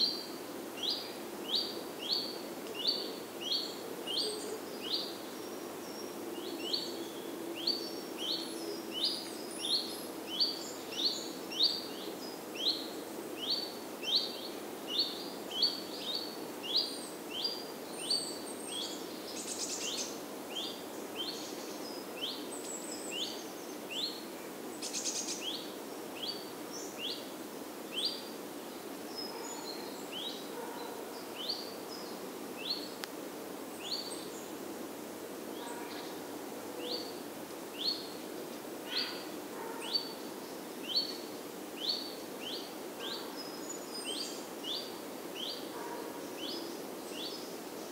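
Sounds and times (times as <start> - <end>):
outdoor background noise: 0.0 - 47.9
other birds chirping faintly: 35.5 - 47.9.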